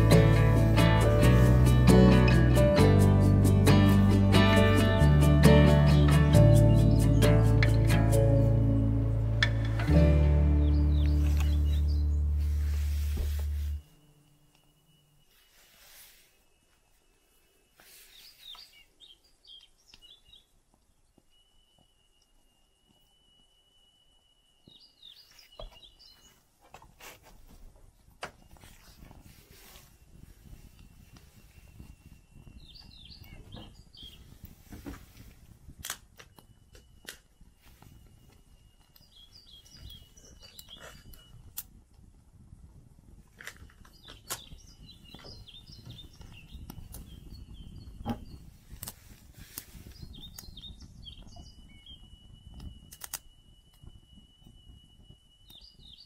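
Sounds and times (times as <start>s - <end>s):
songbirds chirping: 0.0s - 41.7s, 43.3s - 56.0s
twigs crackling in wood stove: 6.1s - 16.0s, 24.6s - 42.4s, 43.0s - 55.9s
fire crackling pops: 40.6s - 55.6s.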